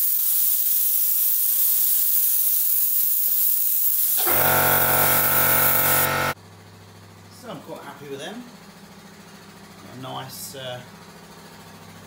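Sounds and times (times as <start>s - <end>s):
spray gun hissing: 0.0s - 6.4s
air compressor motor hum: 3.8s - 6.4s.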